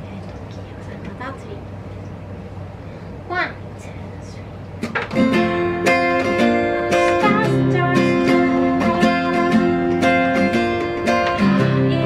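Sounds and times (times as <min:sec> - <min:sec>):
strummed acoustic guitar: 0:04.8 - 0:12.0.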